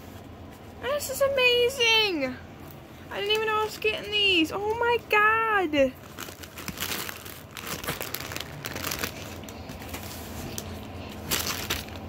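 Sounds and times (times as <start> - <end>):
plastic snack bags crinkling: 3.1 - 12.0.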